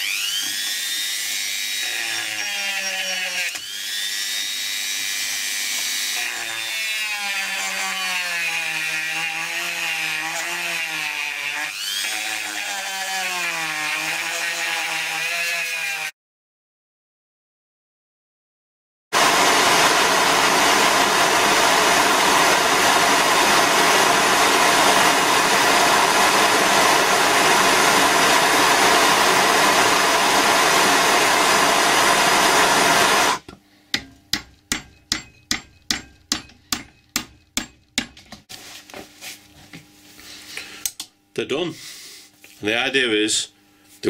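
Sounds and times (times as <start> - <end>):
gas torch flame hissing: 19.2 - 33.4.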